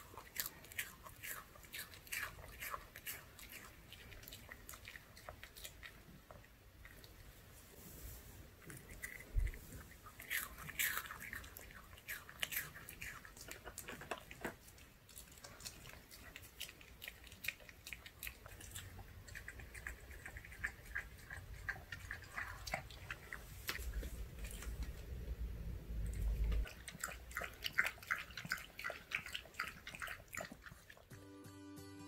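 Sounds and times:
dog chewing with wet clicks: 0.0 - 7.4, 8.6 - 31.2.

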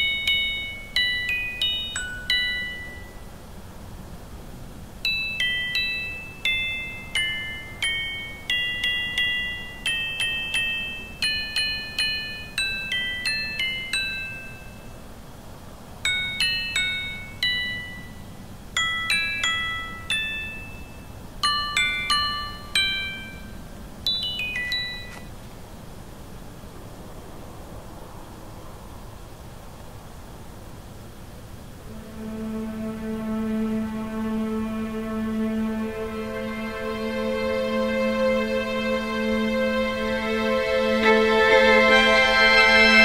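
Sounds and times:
metal chimes ringing: 0.0 - 3.4, 5.0 - 15.0, 16.1 - 25.3.

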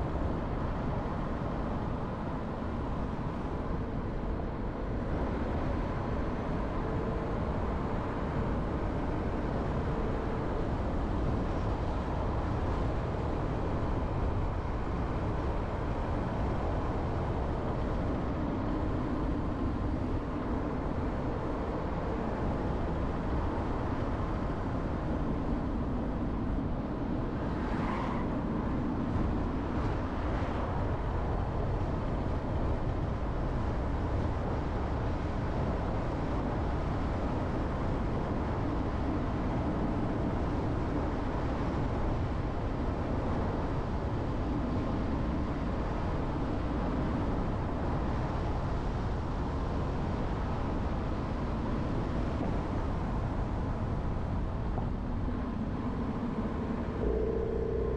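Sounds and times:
car engine and tyre rumble: 0.0 - 57.9
faint brief high sound: 57.0 - 57.9.

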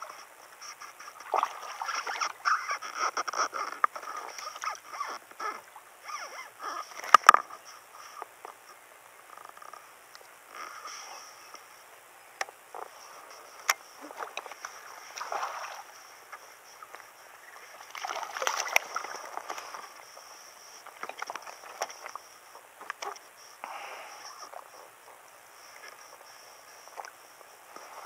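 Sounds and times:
water sloshing: 1.2 - 7.4, 12.7 - 23.2
fish splashing into water: 17.9 - 19.6
fishing rod clicks and knocks: 21.0 - 22.1.

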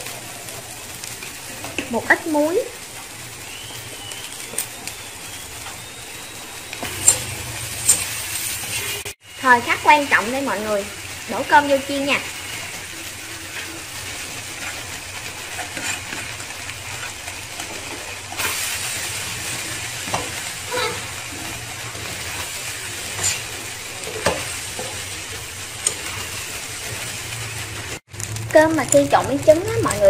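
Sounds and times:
rice sizzling in a wok: 0.0 - 30.0
metal spatula scraping a pan: 6.8 - 9.1, 12.5 - 25.1.

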